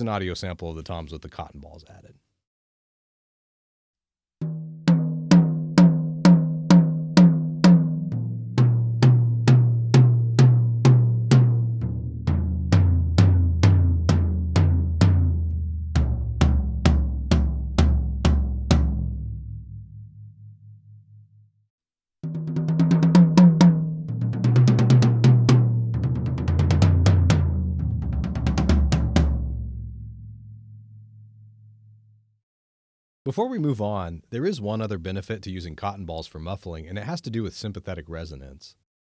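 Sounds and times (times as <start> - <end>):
tom drums struck: 4.4 - 19.8, 22.2 - 30.1.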